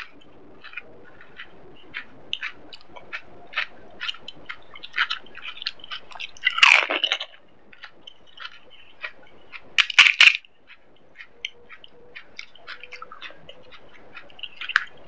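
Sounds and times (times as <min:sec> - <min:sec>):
crisp shells crunching: 0:00.0 - 0:10.4
wet chewing: 0:00.0 - 0:15.0.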